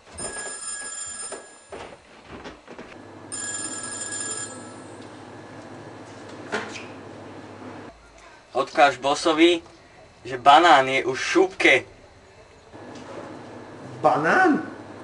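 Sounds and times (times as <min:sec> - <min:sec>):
telephone ringing: 0:00.0 - 0:02.0, 0:03.0 - 0:06.2.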